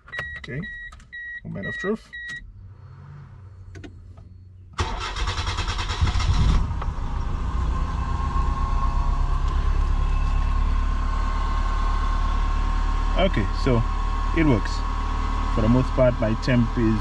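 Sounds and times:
car engine idling: 0:00.0 - 0:17.0
car starter cranking: 0:03.3 - 0:07.3.

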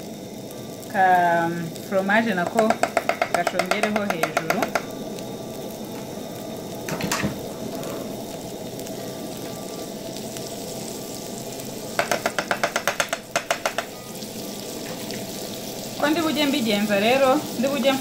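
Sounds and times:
patties sizzling in a pan: 0:00.0 - 0:18.0
metal spoon tapping a pan: 0:02.4 - 0:04.9, 0:12.0 - 0:14.1.

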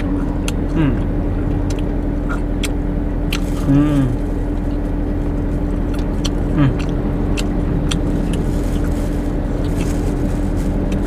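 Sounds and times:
person chewing food: 0:00.0 - 0:04.8, 0:05.5 - 0:11.0
car engine idling: 0:00.0 - 0:11.0
plastic bags crackling: 0:03.4 - 0:04.7, 0:08.0 - 0:11.0.

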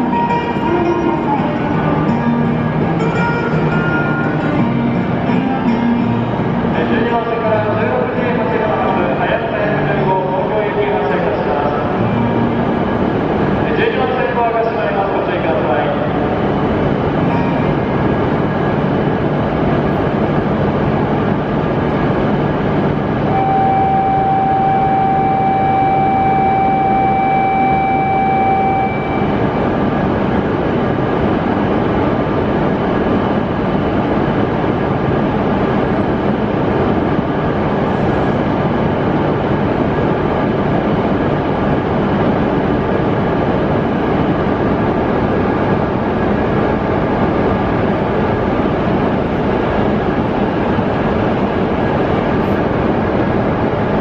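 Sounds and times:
train equipment whir and hum: 0:00.0 - 0:54.0
steady electronic beep: 0:17.2 - 0:17.9, 0:23.3 - 0:29.8.

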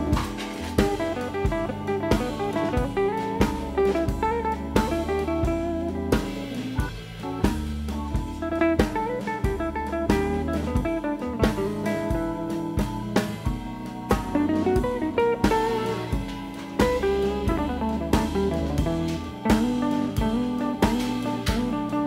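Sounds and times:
drum kit steady beat: 0:00.0 - 0:22.0
guitar notes: 0:00.0 - 0:22.0.

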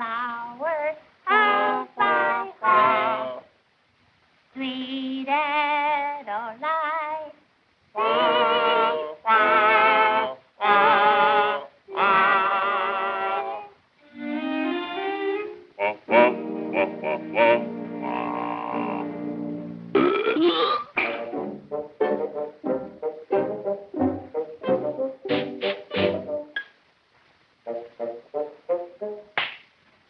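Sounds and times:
cartoon characters singing: 0:00.0 - 0:03.4, 0:04.6 - 0:07.4, 0:08.0 - 0:13.8, 0:15.7 - 0:19.3.

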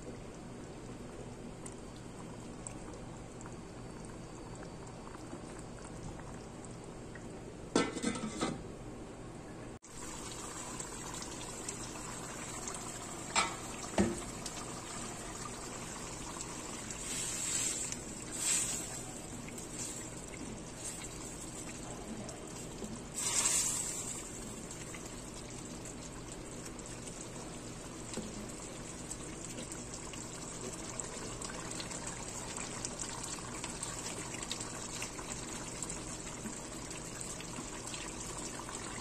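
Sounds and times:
sauce bubbling in a wok: 0:09.8 - 0:39.0.

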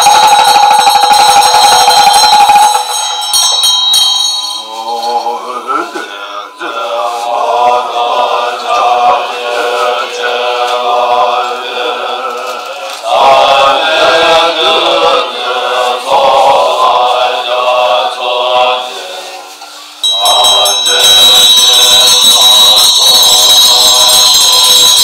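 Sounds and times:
men chanting prayers: 0:02.0 - 0:25.0.

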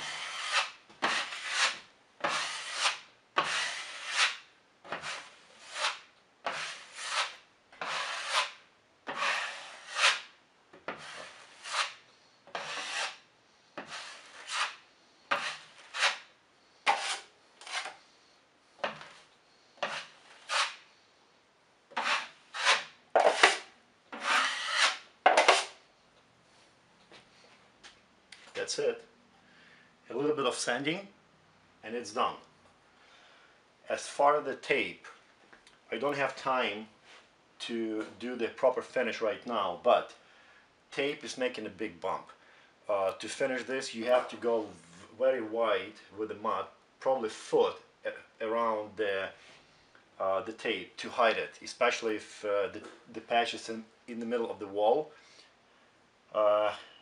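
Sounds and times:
drywall knife scraping compound: 0:00.0 - 0:18.1, 0:18.8 - 0:20.9, 0:21.9 - 0:25.8.

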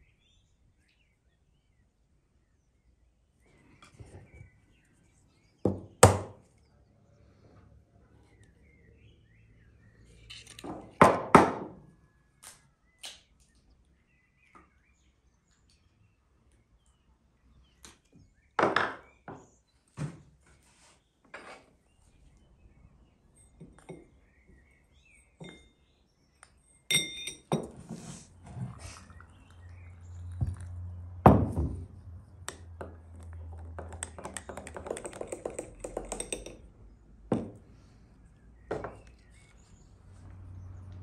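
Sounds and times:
eggs and bowls knocking on table: 0:05.7 - 0:06.4, 0:32.8 - 0:36.6, 0:37.3 - 0:37.6.

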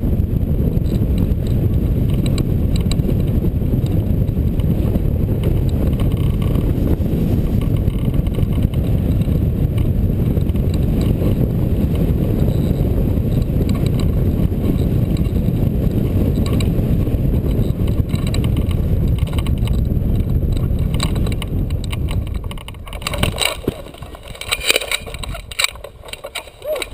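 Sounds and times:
air rushing over microphone: 0:00.0 - 0:24.4
sharp knocks and rattles: 0:05.4 - 0:11.2, 0:17.4 - 0:26.9.

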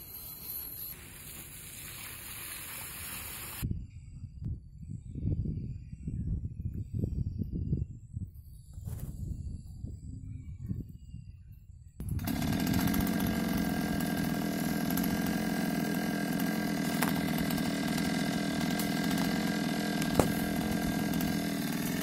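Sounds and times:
chainsaw engine running: 0:12.0 - 0:22.0.

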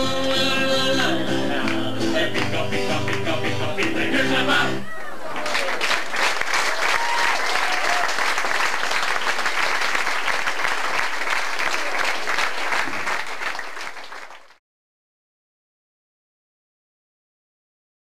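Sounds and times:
audience applauding: 0:04.9 - 0:14.6.

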